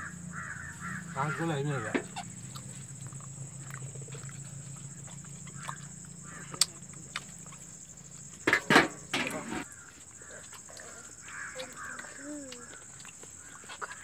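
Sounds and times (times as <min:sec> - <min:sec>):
harsh animal calls: 0:00.0 - 0:07.5, 0:09.5 - 0:14.0
steady low hum: 0:00.0 - 0:11.6.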